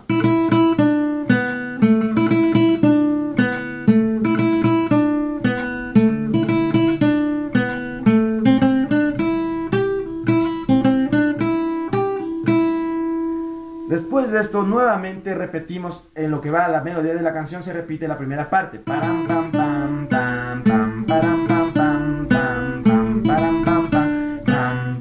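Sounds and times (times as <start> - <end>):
classical guitar melody: 0.0 - 15.5, 18.7 - 25.0.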